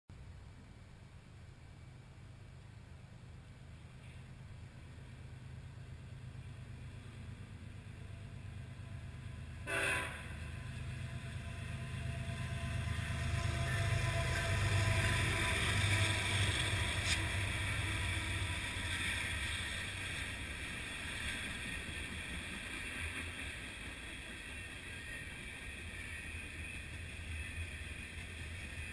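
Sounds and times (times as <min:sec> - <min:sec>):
diesel locomotive rumble: 0:01.8 - 0:28.9
freight cars rolling: 0:04.0 - 0:28.9
short loud burst: 0:09.7 - 0:10.4.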